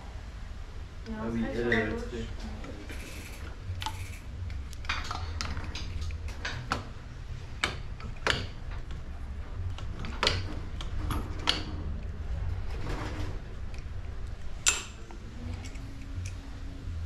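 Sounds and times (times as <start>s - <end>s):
low steady hum: 0.0s - 17.0s
tools clicking on a workbench: 7.6s - 9.0s, 9.6s - 12.1s, 14.6s - 16.4s.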